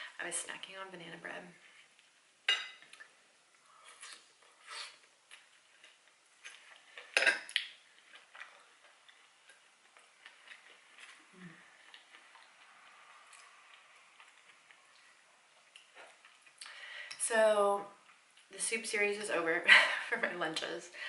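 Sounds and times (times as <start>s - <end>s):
quiet chewing: 2.8s - 17.2s, 18.0s - 18.6s.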